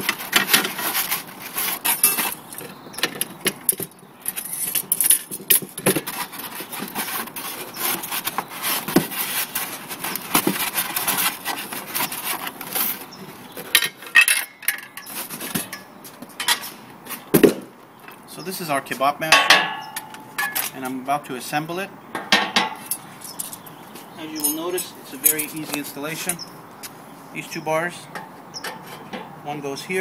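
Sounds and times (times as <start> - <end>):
rubbing and scraping: 0.0 - 17.3.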